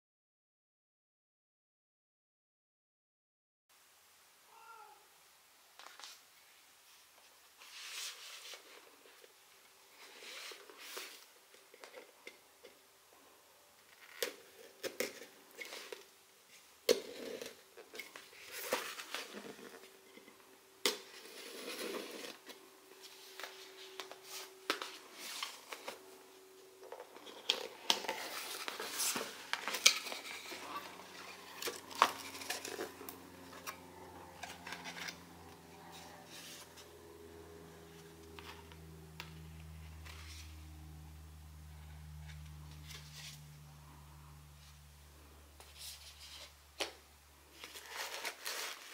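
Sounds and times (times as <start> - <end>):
paper rustling and tearing: 21.1 - 26.2, 27.2 - 33.2, 47.5 - 48.9.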